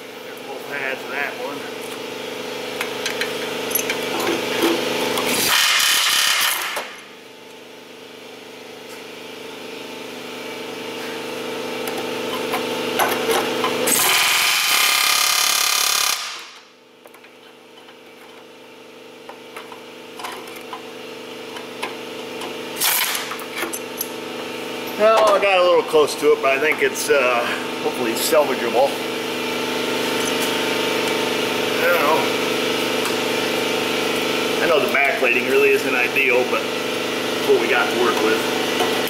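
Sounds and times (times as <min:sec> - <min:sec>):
pneumatic grinder whining: 0:02.7 - 0:07.0, 0:11.0 - 0:16.7, 0:19.2 - 0:24.2.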